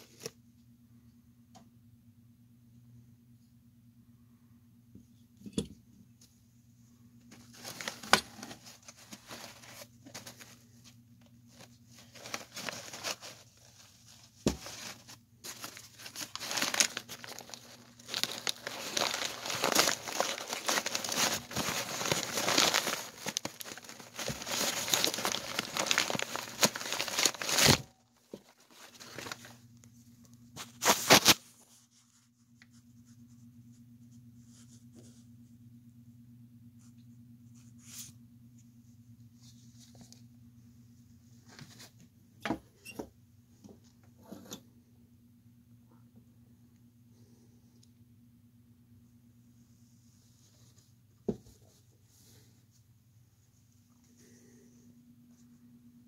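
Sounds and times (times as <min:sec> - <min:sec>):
rubber mask rustling and scraping: 0:07.2 - 0:29.6, 0:30.5 - 0:35.4, 0:37.5 - 0:42.1.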